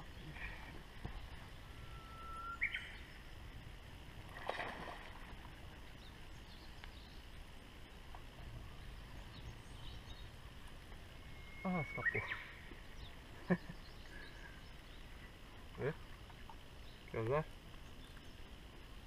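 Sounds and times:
faint outdoor background: 0.0 - 19.0
bird chirps: 1.8 - 3.1, 11.3 - 15.0.

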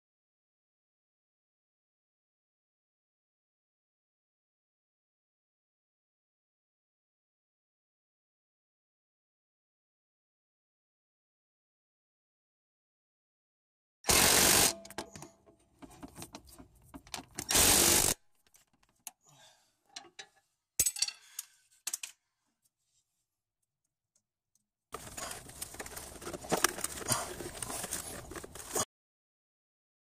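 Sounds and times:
rustling of parts handled: 14.8 - 19.1, 19.9 - 22.2, 25.0 - 28.9.

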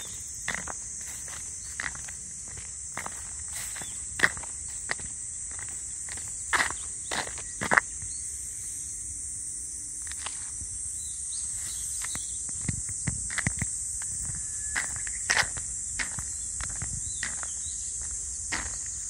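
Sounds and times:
footsteps on soil: 0.0 - 8.2, 11.6 - 19.0
insect chorus: 0.0 - 19.0.

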